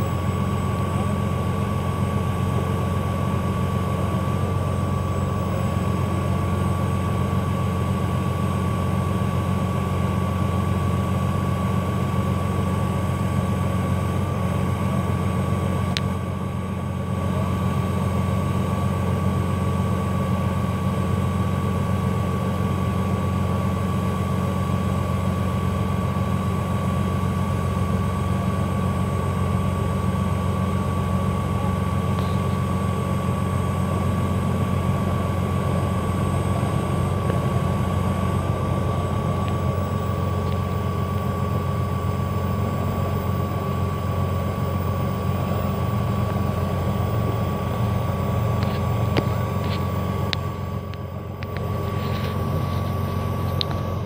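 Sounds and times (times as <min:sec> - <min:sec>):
diesel engine droning: 0:00.0 - 0:54.0
click: 0:48.6 - 0:51.7, 0:53.5 - 0:53.8.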